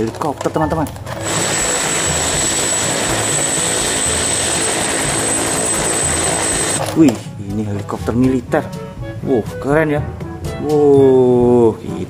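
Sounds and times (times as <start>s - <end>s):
high turbine whine: 1.0s - 6.8s
helicopter rotor and engine noise: 1.1s - 6.8s.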